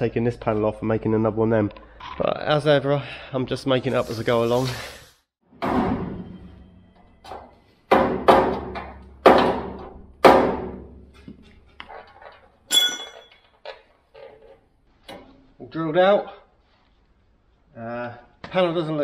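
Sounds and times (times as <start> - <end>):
metallic scrape: 3.7 - 5.2.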